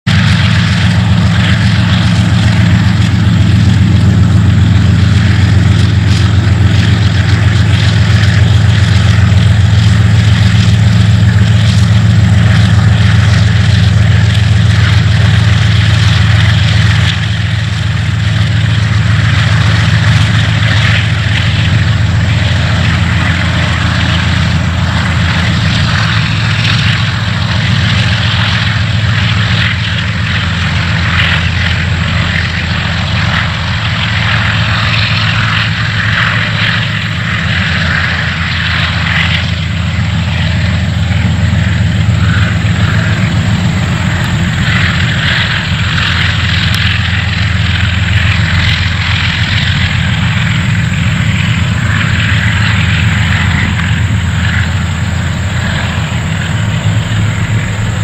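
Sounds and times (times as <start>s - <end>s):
diesel locomotive engines droning: 0.0s - 58.0s.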